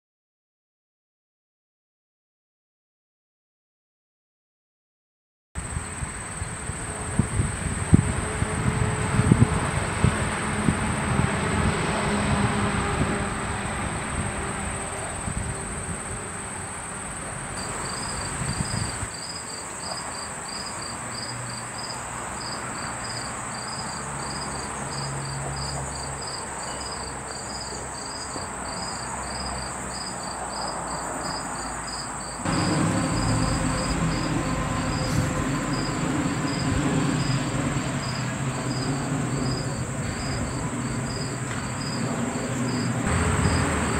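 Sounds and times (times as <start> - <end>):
cricket chirping: 5.6 - 9.3, 13.6 - 43.9
high-pitched insect buzz: 13.7 - 43.9.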